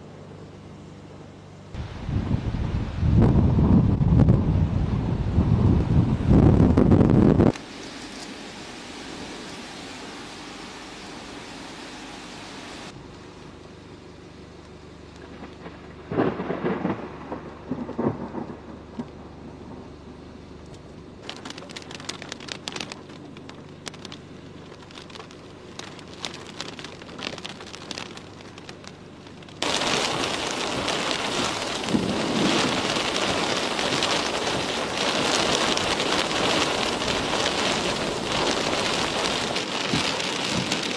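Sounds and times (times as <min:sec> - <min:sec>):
thunder rumbling: 0:01.8 - 0:07.5, 0:15.2 - 0:20.2, 0:29.6 - 0:40.9
heavy rain heard from car: 0:03.1 - 0:13.0, 0:15.2 - 0:19.9, 0:21.2 - 0:40.9
raindrops ticking: 0:20.6 - 0:40.9.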